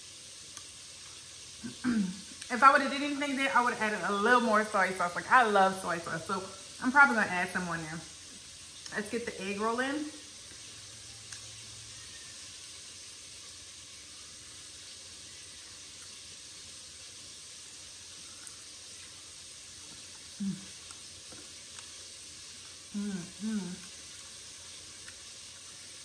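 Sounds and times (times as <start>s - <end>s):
chicken frying in hot oil: 0.0s - 26.0s
person chewing humming mm: 0.4s - 2.5s, 17.9s - 26.0s.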